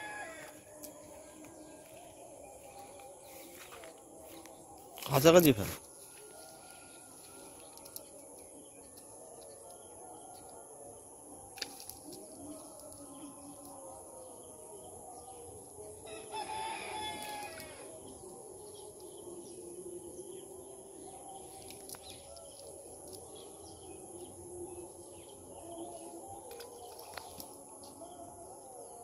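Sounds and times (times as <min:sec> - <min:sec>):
rooster crowing: 0:00.0 - 0:01.3, 0:06.1 - 0:07.9, 0:16.0 - 0:18.0.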